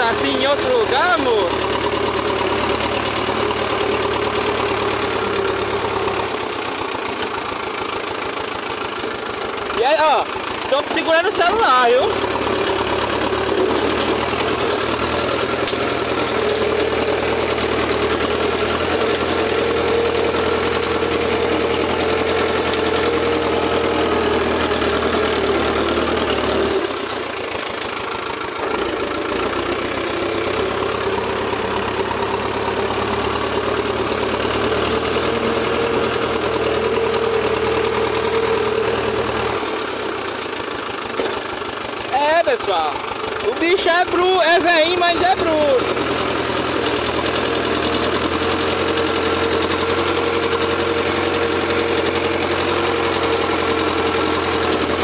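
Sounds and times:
tractor diesel engine running: 0.0s - 55.0s
blade pushing through brush: 12.1s - 27.0s.

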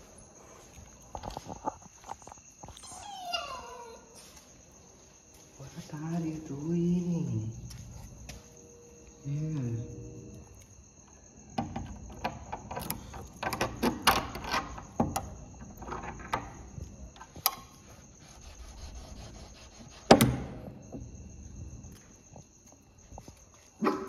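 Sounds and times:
cricket chirring: 0.0s - 24.0s
clicks and rattles against door: 11.5s - 17.6s.

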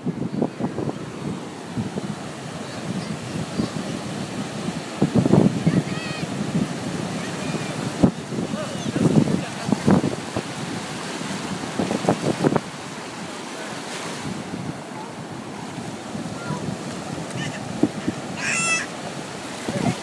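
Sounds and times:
ocean surf washing on beach: 0.0s - 20.0s
short high-pitched cry: 18.4s - 18.9s.

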